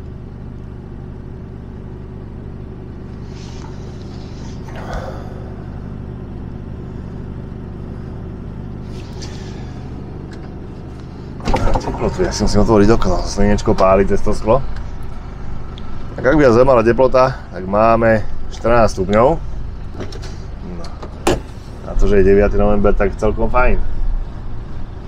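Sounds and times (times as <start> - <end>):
diesel truck engine idling: 0.0 - 25.0.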